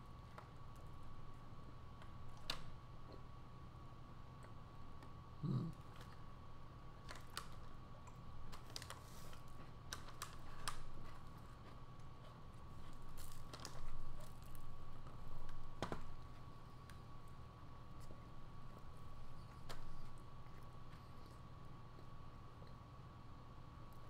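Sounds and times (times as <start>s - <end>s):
faint high hum: 0.0s - 24.0s
man chewing with wet smacks: 7.0s - 15.6s, 17.8s - 22.9s.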